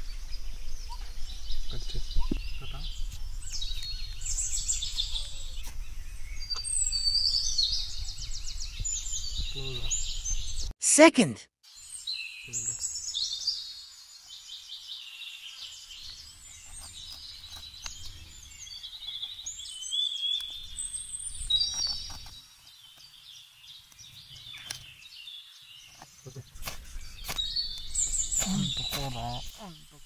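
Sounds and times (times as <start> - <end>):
small birds chirping and trilling: 0.0 - 10.7, 11.7 - 30.0
knife shaving wood: 26.6 - 29.2.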